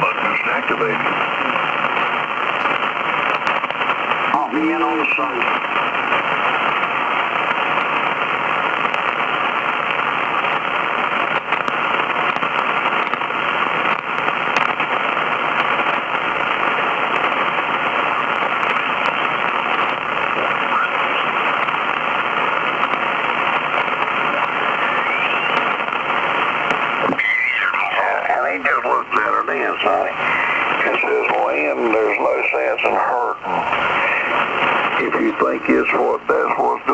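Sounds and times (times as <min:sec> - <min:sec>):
radio static hiss: 0:00.0 - 0:36.9
faint rising whistle: 0:25.0 - 0:25.6.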